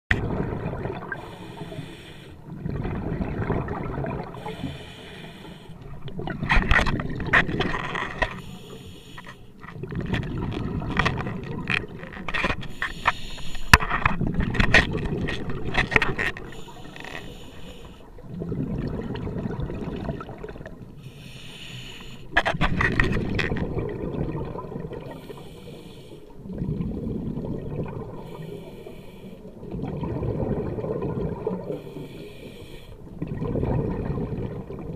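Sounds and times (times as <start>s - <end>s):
exhaled bubbles gurgling: 0.1s - 8.7s, 9.5s - 21.0s, 22.6s - 34.9s
regulator hiss on inhalation: 1.2s - 2.4s, 4.4s - 5.8s, 8.4s - 9.5s, 12.7s - 13.8s, 16.5s - 18.0s, 21.1s - 22.3s, 28.2s - 29.4s.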